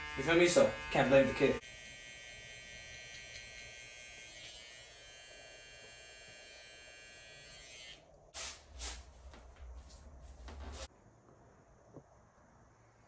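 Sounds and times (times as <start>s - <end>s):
hair trimmer buzzing: 0.0s - 8.1s.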